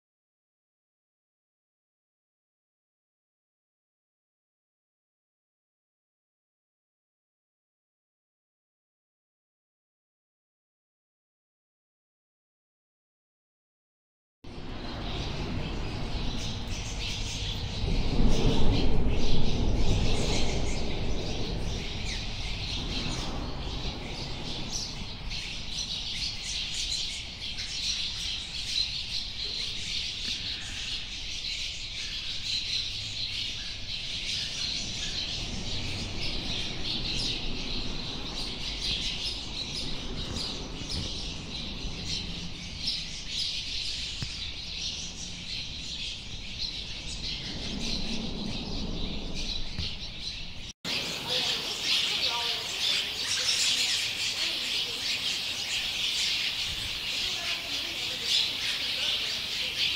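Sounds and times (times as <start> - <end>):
swallows chirping: 14.5 - 59.9.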